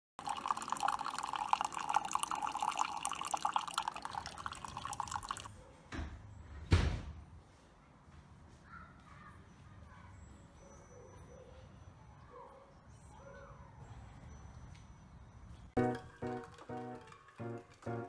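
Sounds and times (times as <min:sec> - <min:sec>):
coffee maker spluttering: 0:00.2 - 0:05.5, 0:15.8 - 0:18.0.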